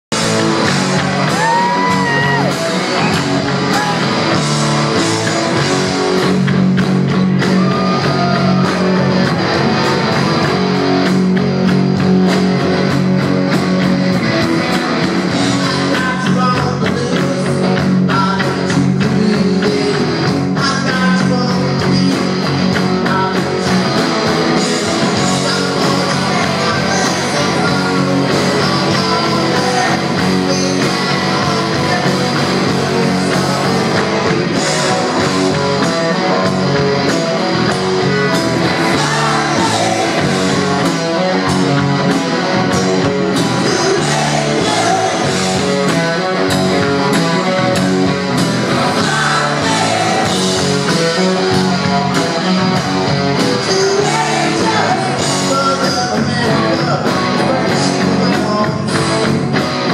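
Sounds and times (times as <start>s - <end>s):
drums: 0.0s - 59.9s
electric guitars: 0.0s - 59.9s
person singing: 15.4s - 36.6s, 48.7s - 52.8s, 53.4s - 59.3s.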